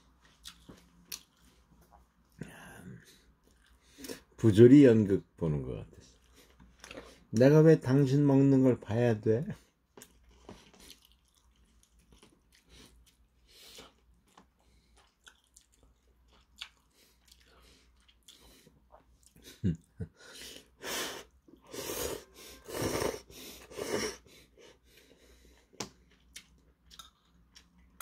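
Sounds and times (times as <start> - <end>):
person slurping noodles: 20.4 - 24.5.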